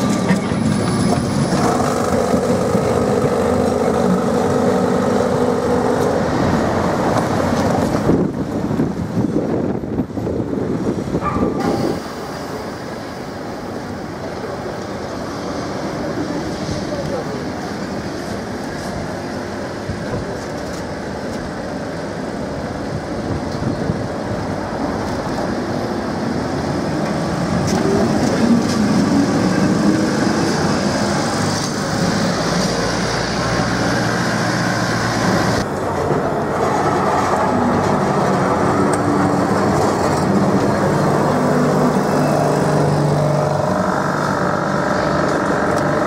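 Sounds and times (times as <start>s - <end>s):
tram rolling on rails: 0.0s - 46.0s
tuk-tuk motor running: 37.6s - 46.0s.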